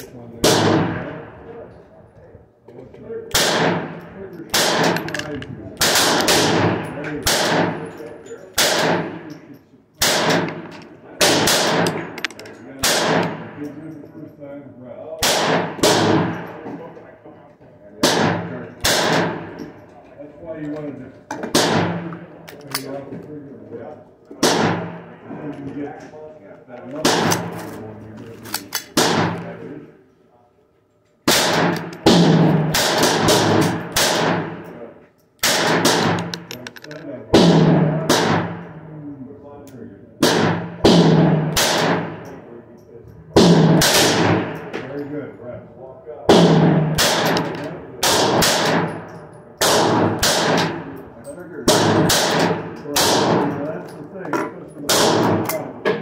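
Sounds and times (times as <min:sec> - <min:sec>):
pistol shots echoing: 0:00.4 - 0:01.4, 0:03.3 - 0:09.4, 0:10.0 - 0:13.7, 0:15.2 - 0:16.6, 0:18.0 - 0:19.7, 0:21.4 - 0:22.6, 0:24.4 - 0:25.3, 0:26.9 - 0:27.6, 0:28.6 - 0:29.6, 0:31.2 - 0:34.8, 0:35.4 - 0:38.8, 0:40.2 - 0:42.3, 0:43.4 - 0:44.8, 0:46.3 - 0:53.7, 0:54.8 - 0:56.0.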